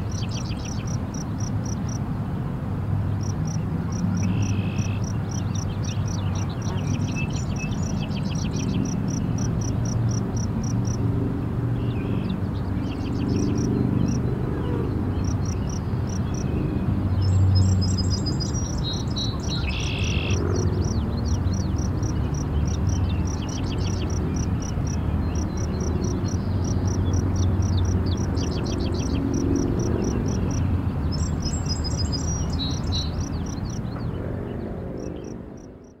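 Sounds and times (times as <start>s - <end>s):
birds singing: 0.0s - 2.0s, 3.1s - 11.0s, 11.8s - 36.0s
high insect chirp: 0.1s - 2.0s, 19.7s - 30.6s.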